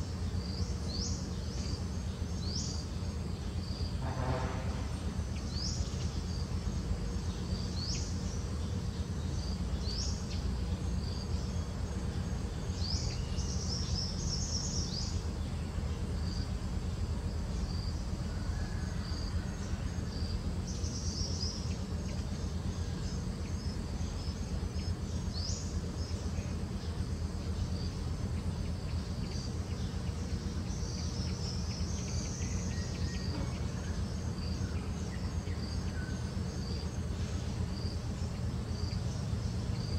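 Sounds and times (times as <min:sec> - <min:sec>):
insects trilling: 0:00.0 - 0:39.9.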